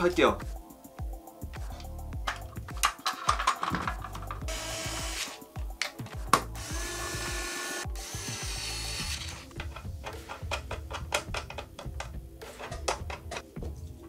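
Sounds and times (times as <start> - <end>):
background music with bass: 0.0 - 14.0
rifle parts clicking and scraping: 1.6 - 4.4, 9.2 - 13.5.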